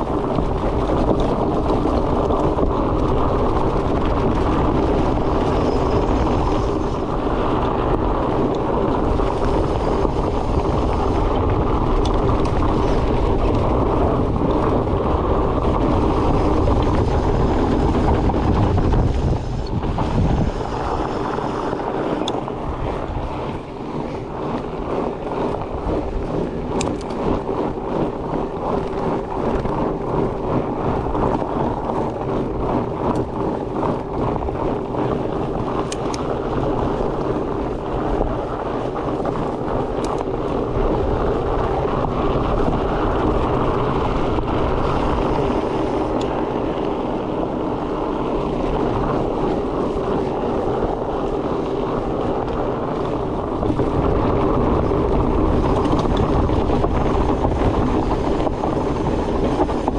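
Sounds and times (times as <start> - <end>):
bike tyres rolling on trail: 0.0 - 59.9
wind on microphone: 0.0 - 59.9.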